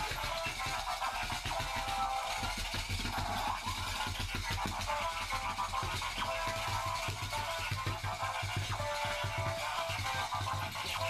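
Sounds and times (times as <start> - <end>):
electronic music with steady beat: 4.4 - 11.0.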